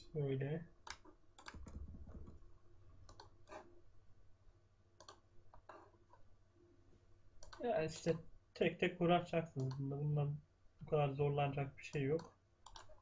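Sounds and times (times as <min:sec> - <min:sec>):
low steady hum: 0:00.0 - 0:13.0
computer mouse clicks: 0:00.8 - 0:01.8, 0:03.0 - 0:03.7, 0:05.0 - 0:05.9, 0:07.4 - 0:07.6, 0:09.6 - 0:09.8, 0:11.9 - 0:13.0.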